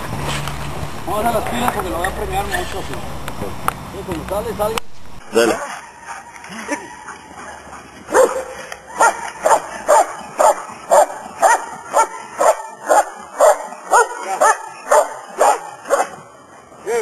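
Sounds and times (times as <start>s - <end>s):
dog barking sharply: 8.1s - 16.2s.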